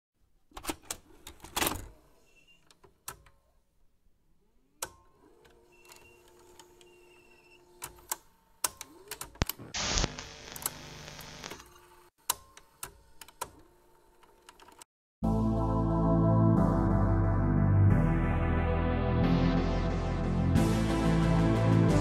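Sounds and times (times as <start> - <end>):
static hiss: 9.4 - 11.6.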